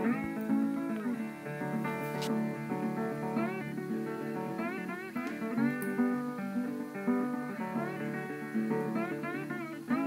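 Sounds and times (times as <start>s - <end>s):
plucked guitar melody: 0.0s - 10.0s.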